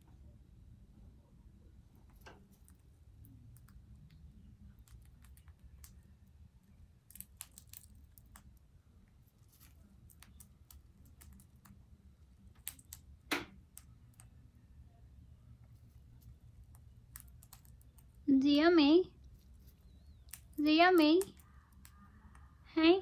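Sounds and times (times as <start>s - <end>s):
parrot cracking seed husks: 7.0s - 8.6s, 9.2s - 11.8s, 12.5s - 14.3s, 16.1s - 18.2s, 19.2s - 22.4s
seeds rustling in a bucket: 9.2s - 10.6s.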